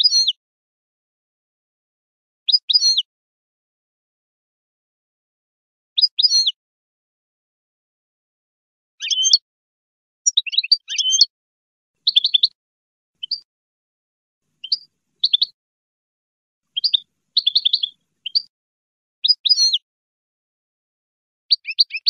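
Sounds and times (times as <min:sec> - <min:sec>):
goldfinch twittering: 0:10.3 - 0:11.3, 0:12.0 - 0:12.5, 0:13.2 - 0:13.4, 0:14.6 - 0:15.6, 0:16.7 - 0:18.5.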